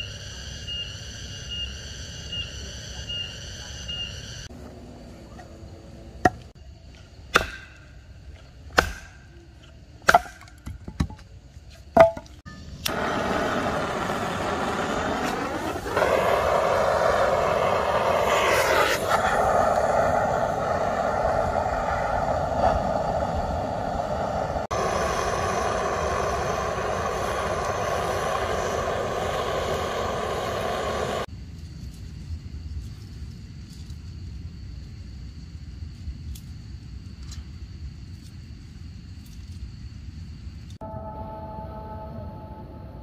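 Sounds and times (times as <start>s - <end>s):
gas torch jet roaring: 12.8s - 31.3s.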